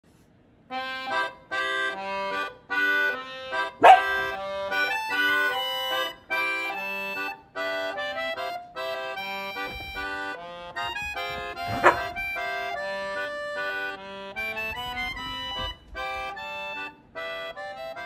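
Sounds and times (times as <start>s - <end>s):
background music of held notes: 0.7s - 18.0s
dog barking: 3.8s - 4.4s, 11.7s - 12.2s.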